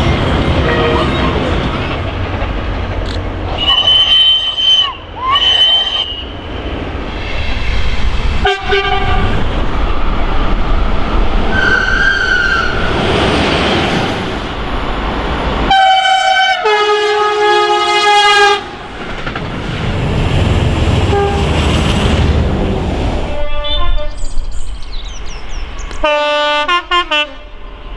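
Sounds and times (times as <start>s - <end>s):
train wheels rumbling on rails: 0.0s - 27.9s
train horn blast: 0.6s - 1.2s, 8.4s - 9.4s, 15.7s - 18.8s, 21.1s - 21.6s, 23.2s - 24.2s, 26.0s - 27.6s
two-tone train horn: 0.6s - 1.2s, 3.6s - 6.3s, 8.4s - 9.4s, 15.7s - 18.8s, 21.1s - 21.6s, 23.3s - 24.2s, 26.0s - 27.6s.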